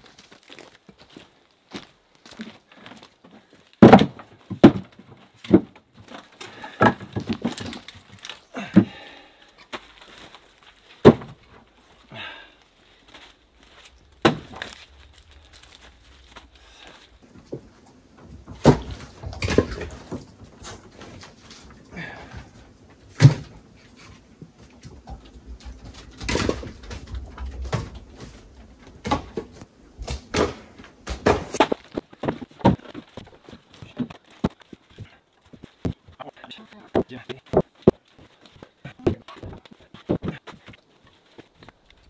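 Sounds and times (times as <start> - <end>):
firewood pieces clattering: 2.4 - 12.0, 12.8 - 23.5, 24.8 - 42.0
firewood knocking onto woodpile: 3.8 - 5.8, 6.5 - 8.0, 11.0 - 11.4, 14.2 - 15.7, 29.0 - 36.0.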